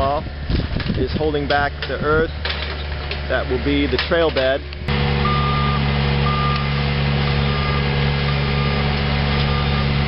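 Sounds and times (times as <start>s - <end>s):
diesel engine running: 0.0s - 10.0s
backup alarm beeping: 4.9s - 10.0s.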